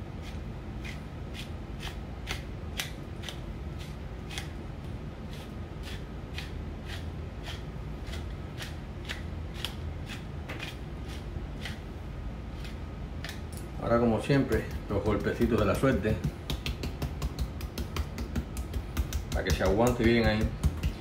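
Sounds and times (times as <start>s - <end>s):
pepper mill grinding: 5.3s - 11.9s.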